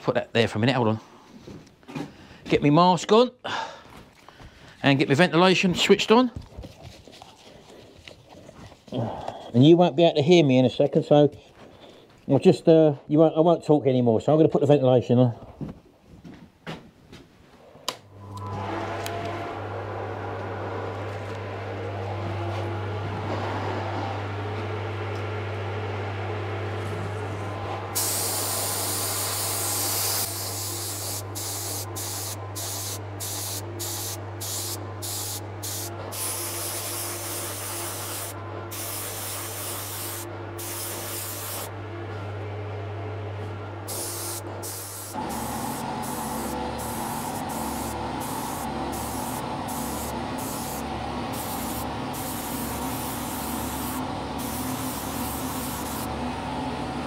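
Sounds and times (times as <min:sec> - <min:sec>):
ventilation fan humming: 0:14.8 - 0:57.0
spray gun hissing: 0:28.0 - 0:41.7, 0:43.9 - 0:56.1.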